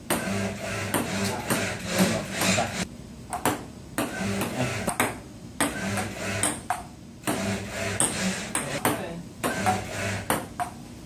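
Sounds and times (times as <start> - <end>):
ping-pong ball tapping: 3.3 - 6.9, 8.0 - 10.8.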